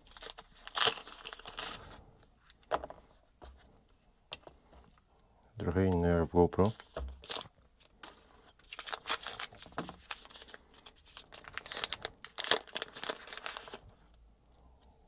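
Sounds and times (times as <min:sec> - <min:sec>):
plastic bag crinkling: 0:08.6 - 0:13.8.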